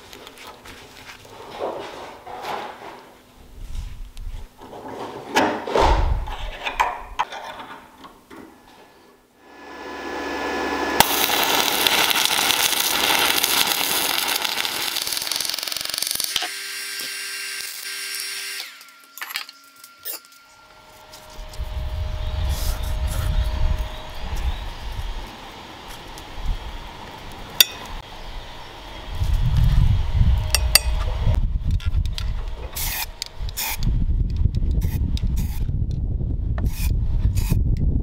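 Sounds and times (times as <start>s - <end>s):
hammer blow on steel: 9.4s - 12.4s
power tool running: 9.4s - 20.0s
low rumble: 21.3s - 25.2s.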